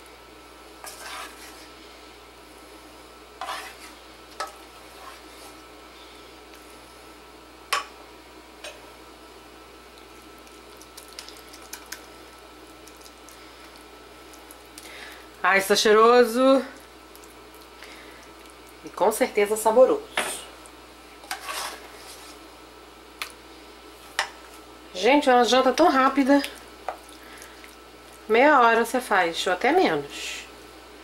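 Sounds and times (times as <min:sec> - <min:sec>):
ladle scraping metal pot: 0:00.8 - 0:01.7, 0:03.4 - 0:05.6, 0:21.2 - 0:22.4
wooden spoon scraping dish: 0:00.8 - 0:01.7, 0:03.4 - 0:05.6, 0:21.2 - 0:22.4.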